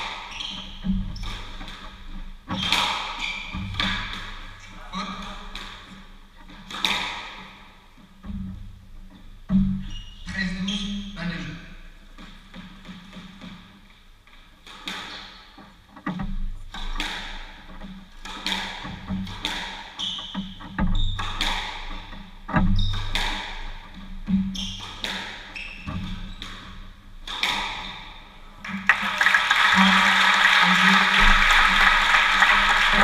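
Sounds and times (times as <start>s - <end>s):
squash ball hits echoing: 0.0s - 4.6s, 5.2s - 8.6s, 14.6s - 15.7s, 16.7s - 28.8s, 30.6s - 33.0s
applause: 28.6s - 33.0s.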